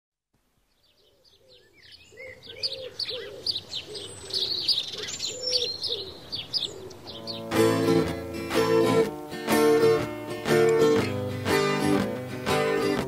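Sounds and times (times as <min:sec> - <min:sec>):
small birds chirping: 0:00.6 - 0:12.1
low cooing bird call: 0:00.9 - 0:07.5.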